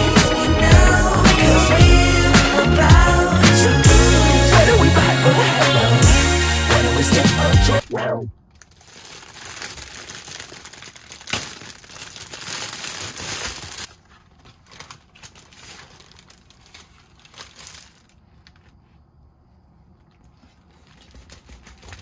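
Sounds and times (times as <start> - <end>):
plastic and paper bag crinkling: 8.5 - 19.1, 20.1 - 22.0.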